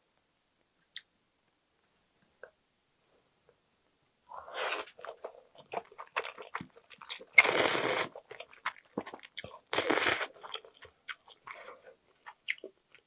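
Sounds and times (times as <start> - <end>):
mouth clicks and smacks: 4.7 - 13.0
noodles being slurped: 5.9 - 8.3.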